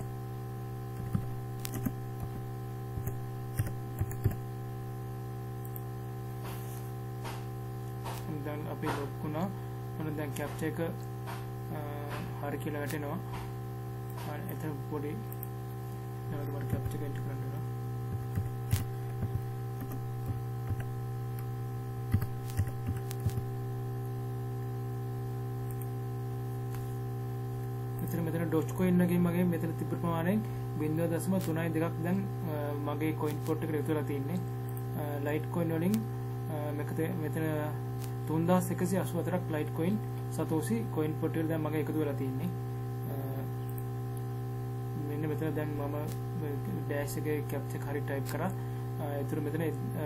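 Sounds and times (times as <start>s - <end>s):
electrical hum: 0.0s - 50.0s
keyboard typing: 1.0s - 2.4s, 3.0s - 4.4s, 16.4s - 17.2s, 18.1s - 20.9s, 22.1s - 23.4s.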